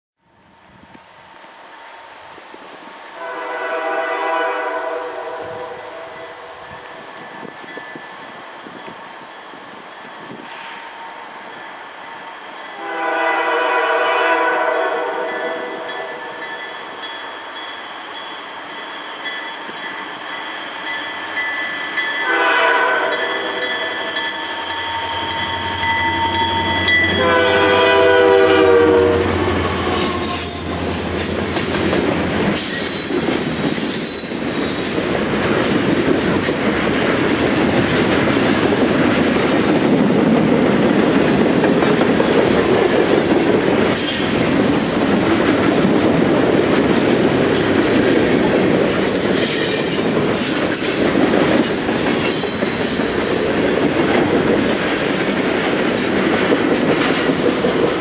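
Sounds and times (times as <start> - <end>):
train wheel noise: 0.4 - 58.0
train horn blasts: 3.2 - 7.0, 12.8 - 16.4, 22.2 - 31.2
rail-joint clicks: 10.3 - 11.0, 23.2 - 27.2, 29.6 - 40.5, 41.6 - 46.1, 48.8 - 58.0.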